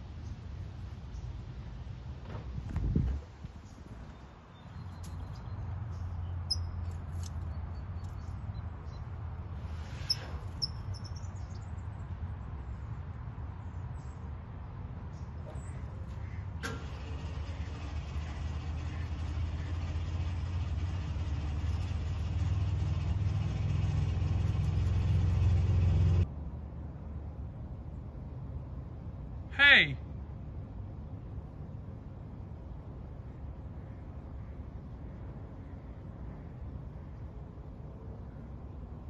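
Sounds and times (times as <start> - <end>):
vehicle engine rumbling: 0.0 - 26.3
faint high chirps: 6.3 - 9.1.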